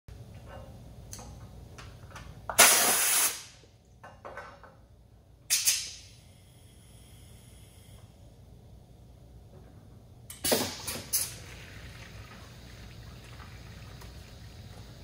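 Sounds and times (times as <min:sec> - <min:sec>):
compressed air hiss: 0:02.6 - 0:03.6, 0:05.5 - 0:08.2.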